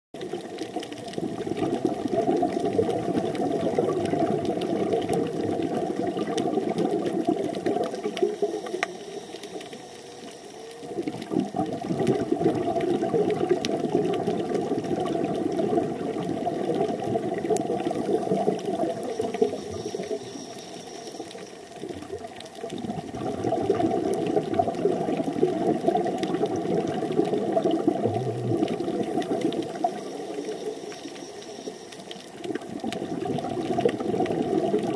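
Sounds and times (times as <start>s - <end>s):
faint clicks: 0.2s - 34.9s
underwater bubbling and gurgling: 0.2s - 34.9s.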